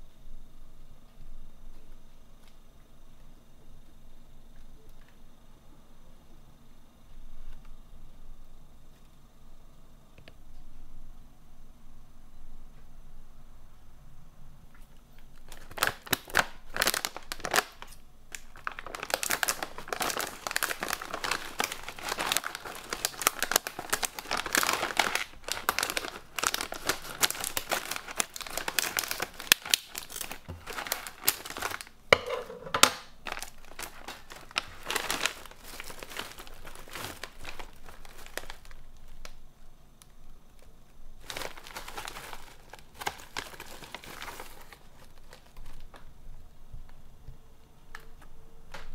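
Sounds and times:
plastic packaging crinkling: 15.1 - 47.0.

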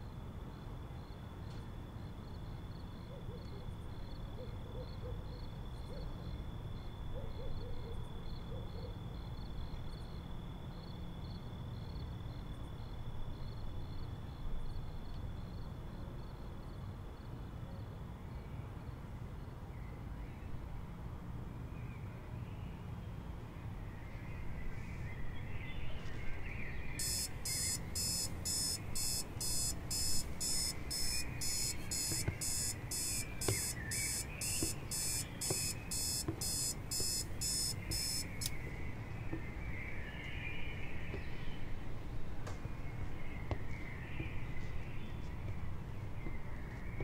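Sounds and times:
faint birdsong: 21.7 - 47.0
high-pitched electronic alarm beeping: 27.0 - 38.5.

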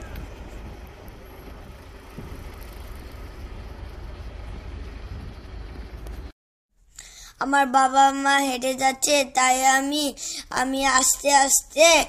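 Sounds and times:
cars driving past: 0.0 - 6.3.

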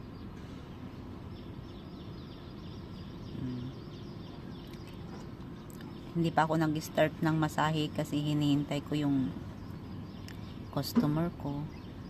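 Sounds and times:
ambient background noise: 0.0 - 12.0
faint high bird chirps: 0.0 - 12.0.

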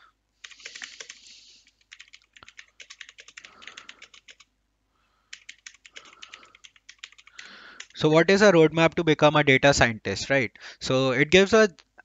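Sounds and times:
typing on keyboard: 0.4 - 4.5, 5.3 - 8.0.

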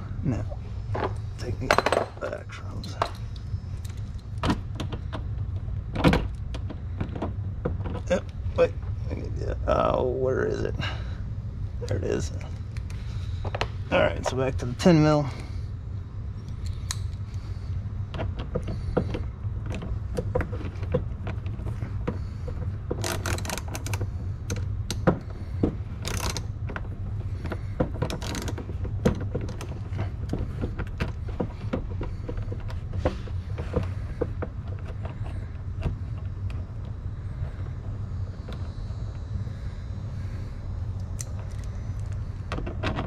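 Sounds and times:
steady low hum: 0.0 - 43.0
tools knocking and scraping metal: 0.9 - 3.3
ratchet clicking: 26.0 - 26.5.

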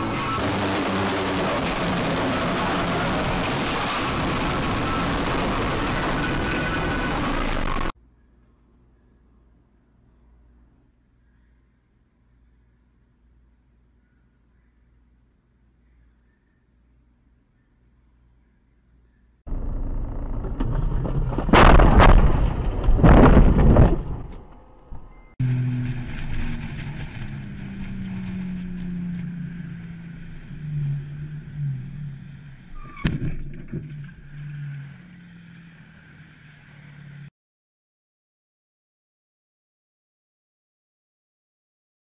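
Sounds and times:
heavy blasts: 0.0 - 7.9
loud rumbling: 0.0 - 7.9, 19.5 - 32.9
car engine and road noise: 0.0 - 8.0, 19.5 - 37.3.

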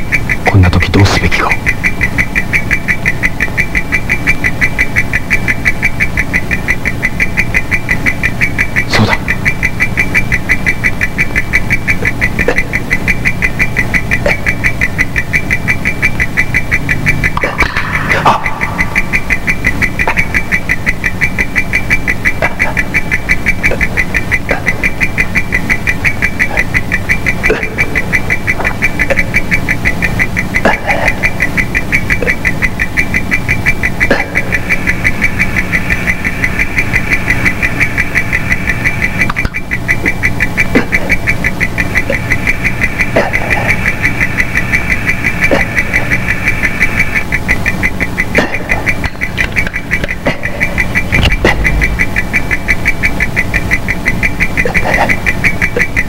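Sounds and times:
rapid pulsing high tone: 0.0 - 56.0
low hum: 48.0 - 54.0.

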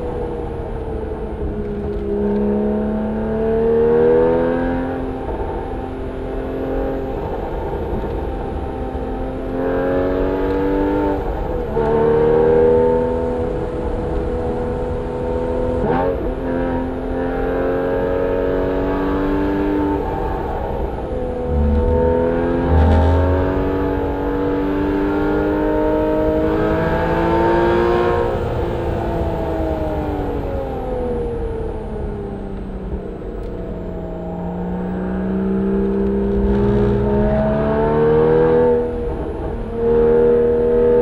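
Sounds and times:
sports car engine accelerating: 0.0 - 41.0
exhaust crack: 21.3 - 24.4, 36.0 - 37.5.

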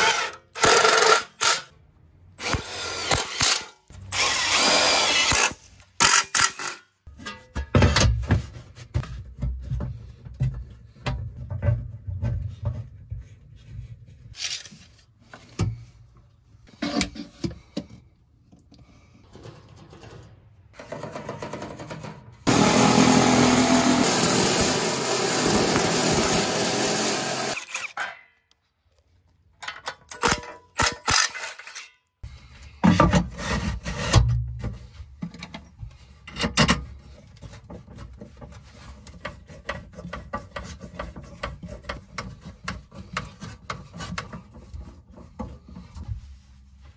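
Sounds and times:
power tool cutting metal: 22.5 - 28.0.

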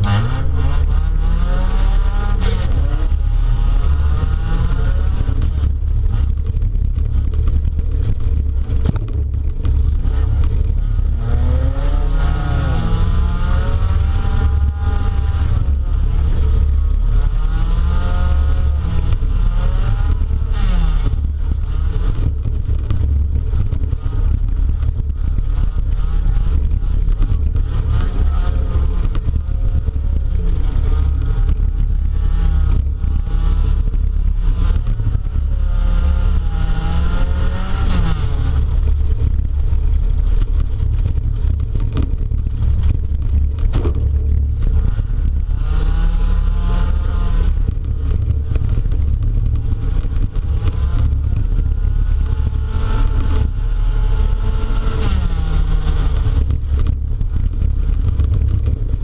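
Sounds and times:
car engine revving: 0.0 - 59.0
knocks and rattles: 38.2 - 46.0.

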